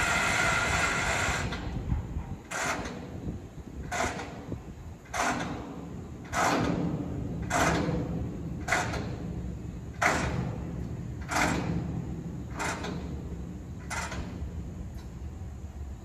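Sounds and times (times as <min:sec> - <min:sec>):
rail cars rumbling: 0:00.0 - 0:05.1.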